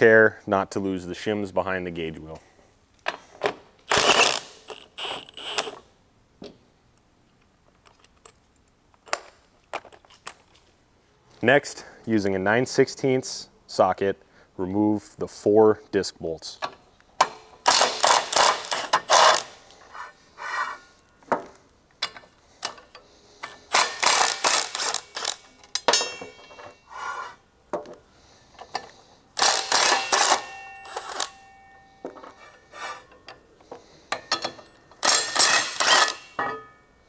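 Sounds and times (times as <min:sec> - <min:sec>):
metallic clinks and knocks: 0:07.7 - 0:10.7, 0:21.3 - 0:26.9, 0:27.7 - 0:33.4, 0:34.1 - 0:36.9
impact wrench hammering: 0:17.2 - 0:19.5, 0:23.4 - 0:26.8, 0:29.4 - 0:32.2, 0:34.1 - 0:36.7.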